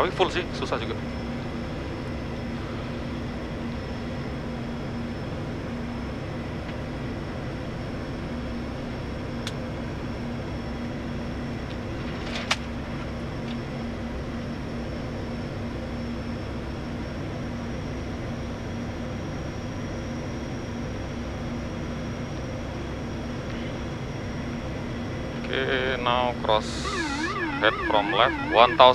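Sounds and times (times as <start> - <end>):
turboprop cockpit drone: 0.0 - 12.0, 12.6 - 28.9
low hum tone: 26.6 - 28.9.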